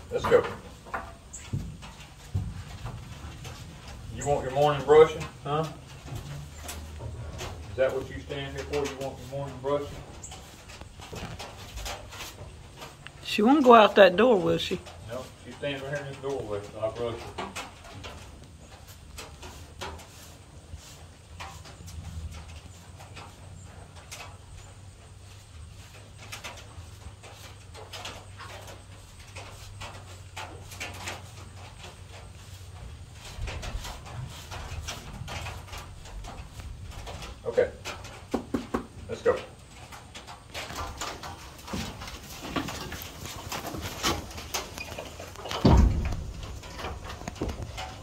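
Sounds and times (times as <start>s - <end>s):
cattle rustling in barn: 0.0s - 48.0s
brush swishing over cow hair: 19.0s - 22.0s
low thump: 45.6s - 46.6s.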